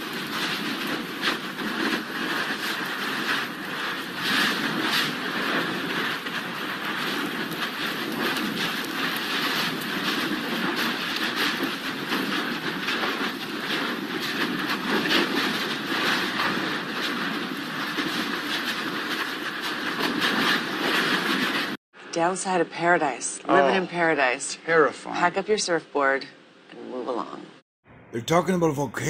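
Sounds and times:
lava jetting roar: 0.0 - 21.8
lava spatter crackling: 0.0 - 21.8.

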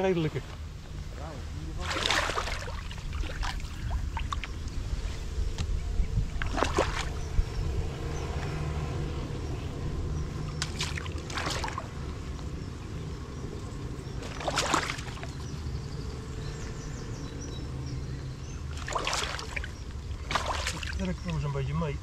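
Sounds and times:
steady low rumble: 0.0 - 22.0
water sloshing and splashing: 1.6 - 8.4, 10.3 - 12.2, 14.0 - 15.8, 18.6 - 21.5.

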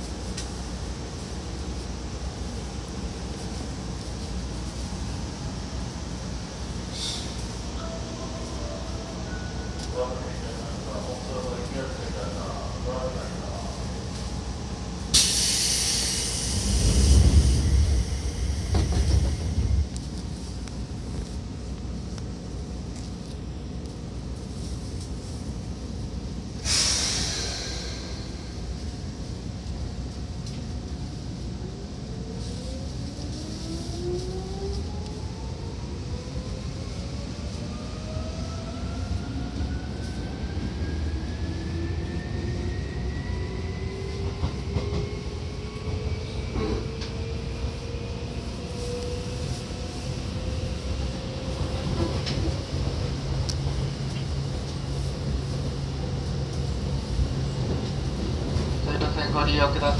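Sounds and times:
electric train accelerating: 15.1 - 20.3
rail joint clacks: 18.6 - 20.2.

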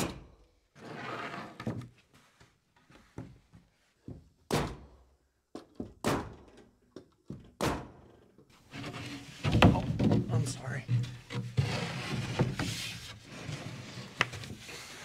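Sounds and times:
plywood sheet scraping: 8.6 - 15.0.

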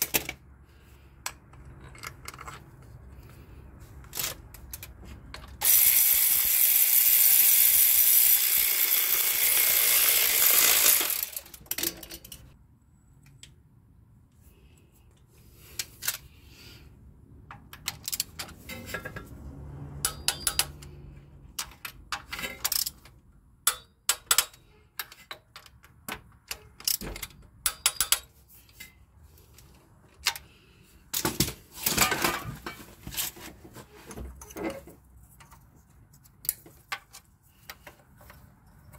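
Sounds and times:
power tool running: 5.6 - 11.5
ratchet wrench clicking: 5.6 - 12.5, 17.6 - 18.5, 20.0 - 21.0, 22.6 - 25.8, 26.5 - 28.3.

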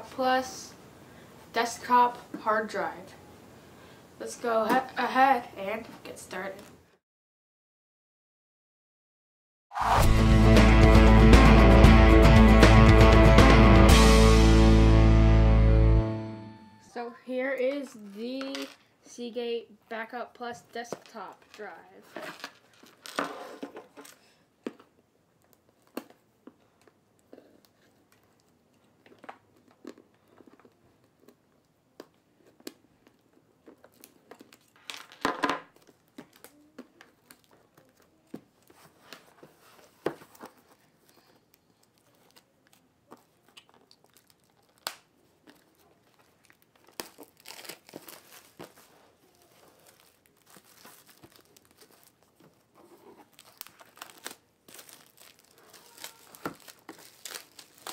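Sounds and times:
plastic shrink wrap crinkling: 21.4 - 24.4, 32.4 - 57.9.

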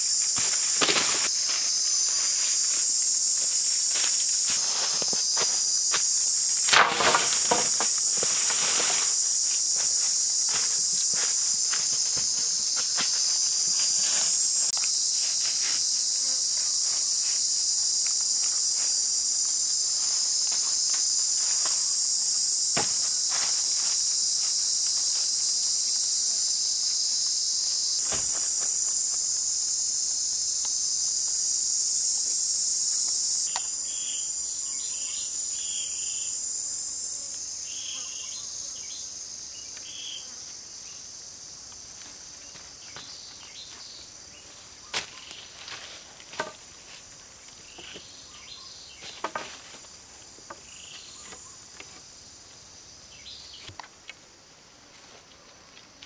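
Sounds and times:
high-pitched insect chorus: 0.0 - 56.0.

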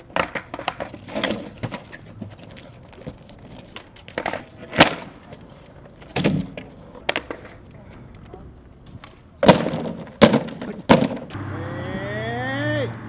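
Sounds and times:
skateboard clattering on cardboard: 0.0 - 7.8, 8.8 - 11.3.

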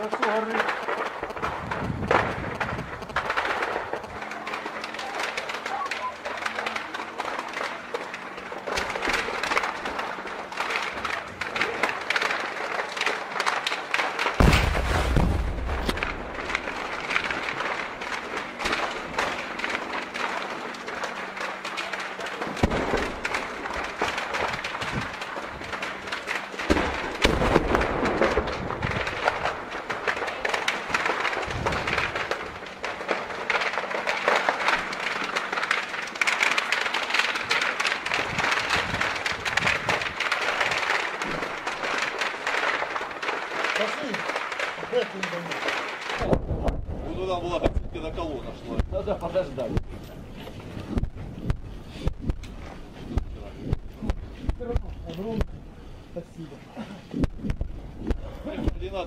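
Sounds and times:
gunfire crackling: 0.0 - 59.0
heavy explosion blasts: 0.6 - 4.2, 14.3 - 20.3, 22.5 - 25.5, 26.6 - 32.7, 45.6 - 49.9, 57.2 - 59.0.

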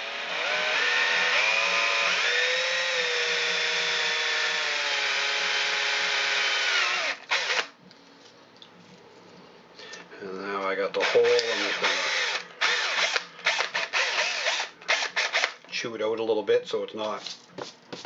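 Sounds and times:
power drill whine: 0.0 - 7.7, 11.0 - 15.6.

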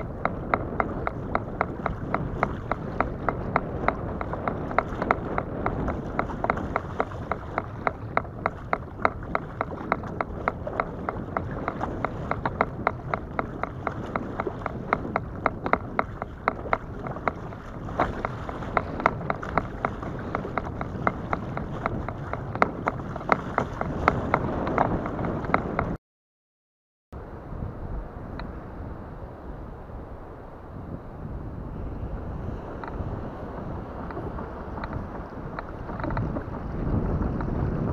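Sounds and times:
water and wind on hull: 0.0 - 26.0, 27.2 - 37.9.

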